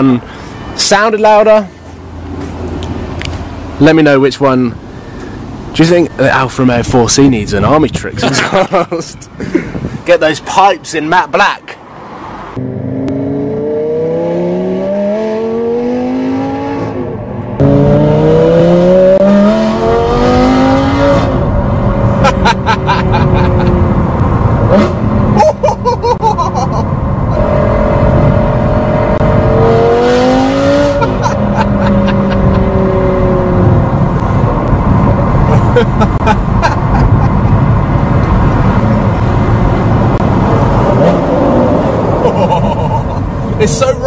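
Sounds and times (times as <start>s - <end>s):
sports car engine accelerating: 12.6s - 25.4s, 26.6s - 42.9s.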